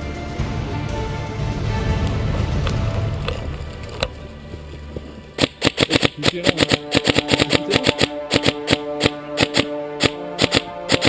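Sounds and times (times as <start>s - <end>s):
background music: 0.0s - 11.0s
airsoft rifle firing: 5.4s - 11.0s.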